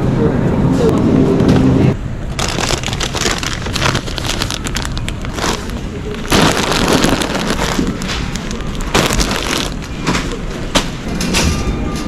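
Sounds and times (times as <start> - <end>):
plastic packaging crinkling: 2.3 - 9.9.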